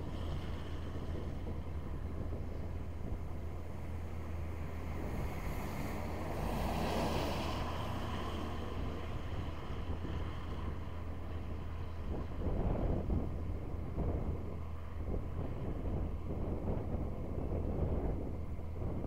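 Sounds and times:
steady low rumble: 0:00.0 - 0:19.0
wind noise on microphone: 0:00.0 - 0:19.0
wash of noise: 0:04.8 - 0:09.7.

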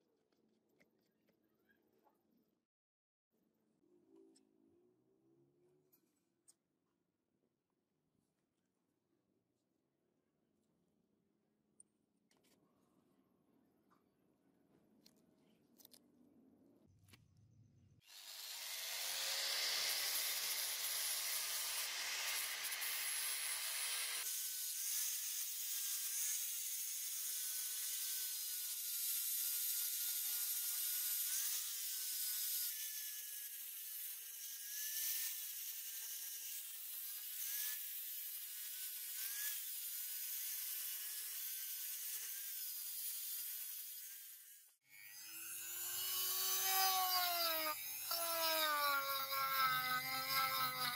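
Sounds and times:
angle grinder grinding wood: 0:38.9 - 0:50.9.

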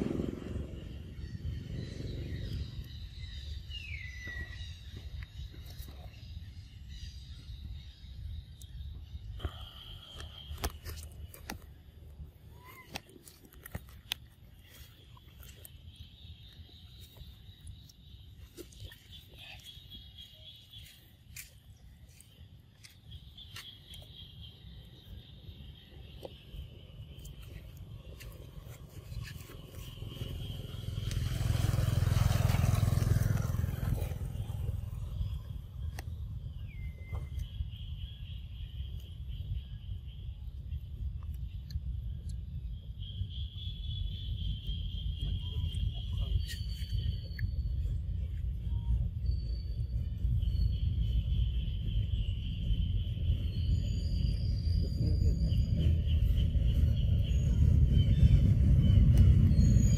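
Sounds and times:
motorbike engine passing: 0:00.0 - 0:02.8, 0:29.6 - 0:35.8
wind rumble on microphone: 0:00.0 - 0:09.3, 0:25.6 - 0:59.9.

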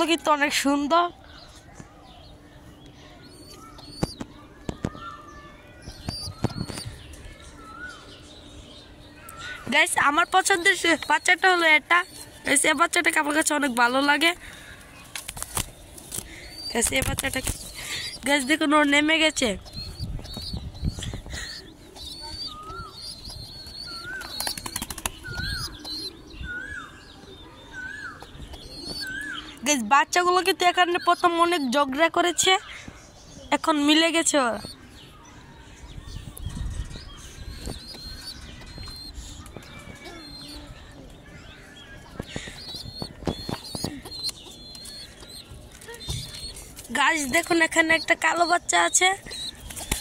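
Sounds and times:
short chirping bird calls: 0:03.2 - 0:08.4, 0:15.5 - 0:29.8, 0:34.2 - 0:50.0
pigeon squabs squeaking: 0:03.3 - 0:04.9, 0:05.8 - 0:07.2, 0:09.7 - 0:14.2, 0:15.4 - 0:27.1, 0:27.7 - 0:32.5, 0:33.7 - 0:34.8, 0:36.5 - 0:40.9, 0:41.9 - 0:50.0
wing flaps: 0:23.9 - 0:25.9.

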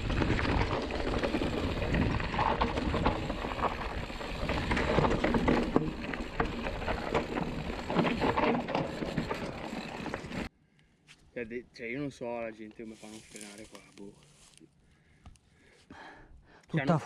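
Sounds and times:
bike chain and frame clatter: 0:00.0 - 0:10.5
bike tyres on loose stones: 0:00.0 - 0:10.5, 0:12.8 - 0:14.6.

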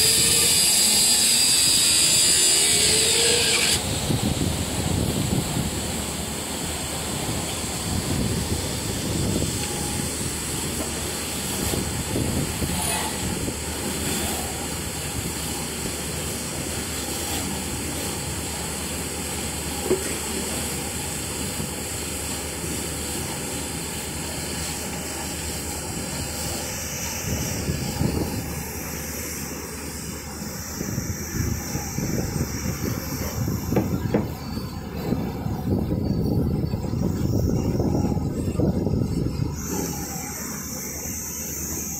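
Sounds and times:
train rumbling: 0:00.0 - 0:41.9.

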